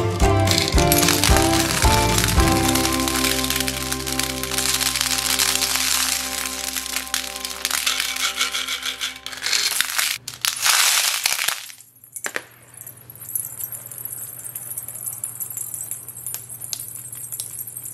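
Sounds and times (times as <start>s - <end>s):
low hum: 0.0s - 10.0s
metal anklets jingling: 0.5s - 10.2s, 11.6s - 17.9s
candy balls rattling and clinking: 0.5s - 17.9s.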